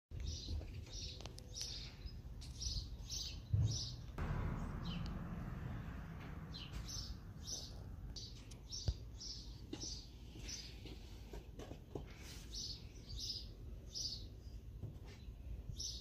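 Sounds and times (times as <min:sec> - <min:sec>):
bird chirping: 0:00.1 - 0:11.0, 0:12.5 - 0:16.0
thump: 0:03.5 - 0:06.9
low outdoor rumble: 0:03.6 - 0:09.5
rush of noise: 0:04.2 - 0:07.8.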